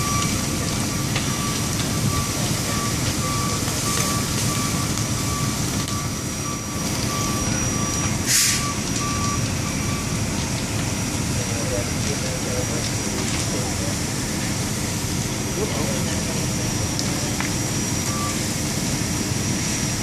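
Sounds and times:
low rumble of engines: 0.0s - 20.0s
truck reversing alarm beeping: 0.0s - 20.0s
air brake hiss: 8.2s - 8.7s.

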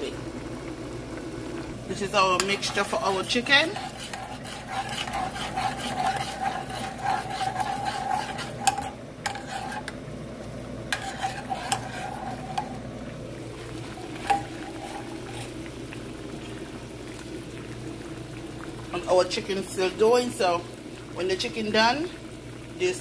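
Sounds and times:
steak sizzling in gravy: 2.0s - 9.9s, 10.9s - 20.9s
spoon scraping saucepan: 2.3s - 10.0s, 10.9s - 12.8s, 13.8s - 15.6s.

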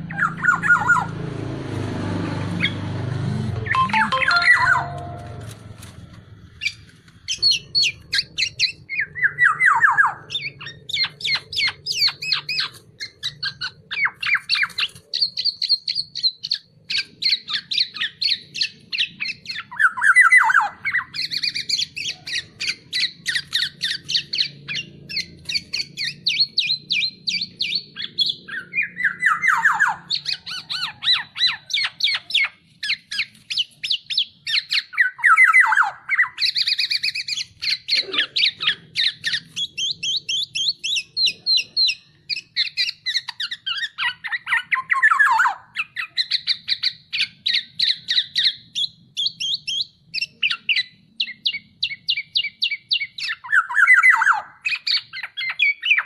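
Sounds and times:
bird harsh chattering calls: 0.0s - 1.2s, 2.6s - 5.2s, 6.5s - 56.0s
bird falling call: 3.5s - 5.6s.

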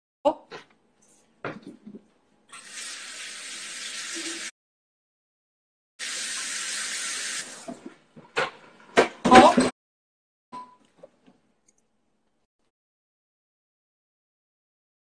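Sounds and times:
tap water running: 2.5s - 4.5s, 6.0s - 8.3s.

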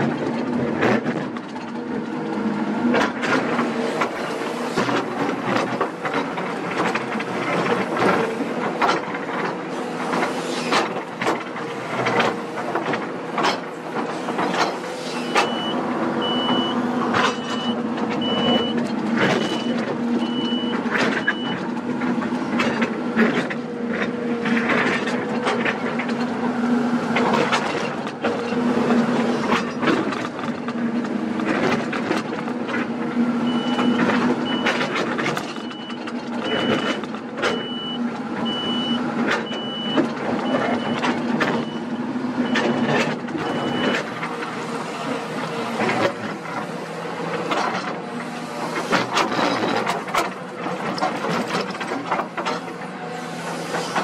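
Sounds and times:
excavator diesel engine running: 0.0s - 54.0s
bucket scraping rock and dirt: 44.0s - 52.7s.

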